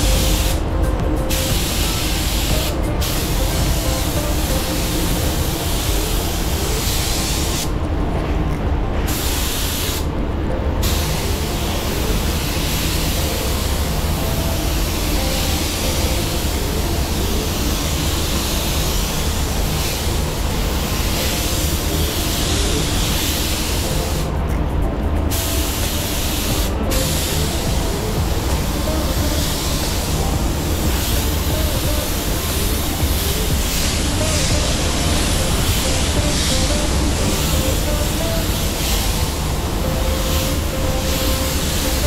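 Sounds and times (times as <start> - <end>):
spray gun hissing: 0.0 - 7.8, 9.1 - 10.1, 10.8 - 24.3, 25.3 - 42.0.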